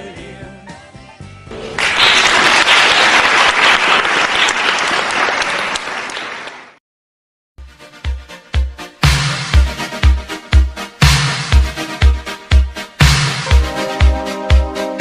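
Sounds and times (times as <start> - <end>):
audience applauding: 1.8 - 6.8
song: 7.6 - 15.0.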